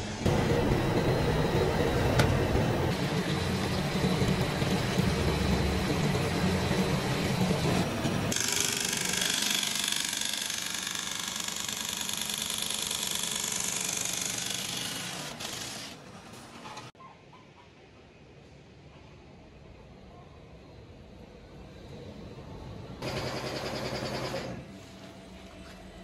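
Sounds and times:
factory machinery rumbling: 0.0s - 8.4s.

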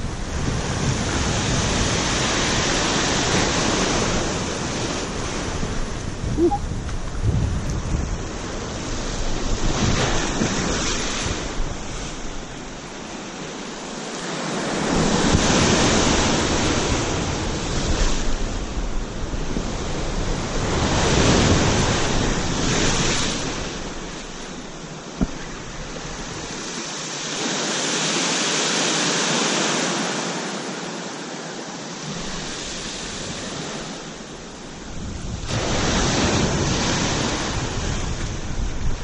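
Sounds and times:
wind buffeting microphone: 0.0s - 12.9s, 32.2s - 39.0s.

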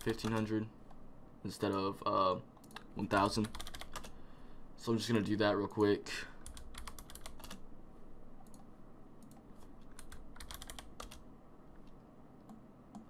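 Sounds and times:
computer keyboard typing: 0.0s - 0.5s, 2.6s - 4.2s, 6.4s - 7.6s, 9.2s - 11.2s.

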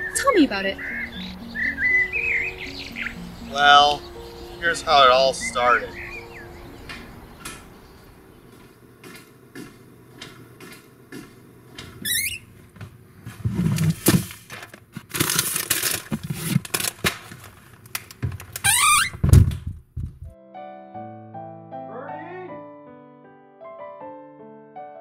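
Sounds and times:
soft footfalls: 8.5s - 13.7s
plastic bag crinkling: 14.4s - 18.6s.

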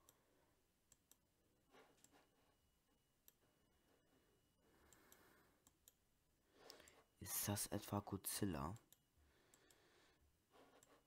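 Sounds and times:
soft mouse clicks: 0.9s - 2.3s, 3.2s - 3.5s, 4.8s - 6.0s, 6.6s - 7.1s, 8.7s - 9.8s, 10.6s - 11.0s.

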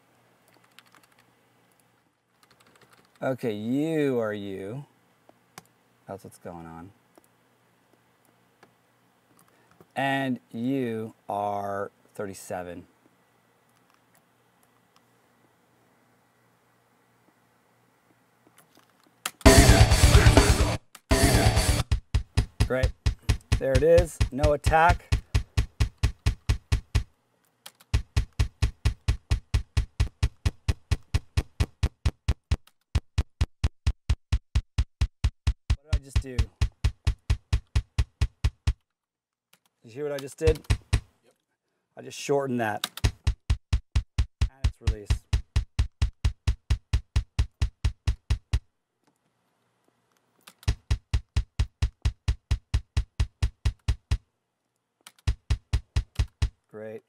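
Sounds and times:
kick drum hits: 21.7s - 27.1s, 27.9s - 38.8s, 40.5s - 41.1s, 43.0s - 48.6s, 50.7s - 54.2s, 55.3s - 56.6s.

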